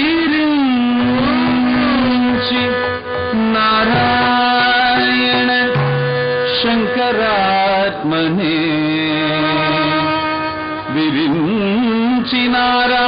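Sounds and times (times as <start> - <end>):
hand drum strokes: 0.0 - 8.1
sliding melody on long notes: 0.0 - 13.0.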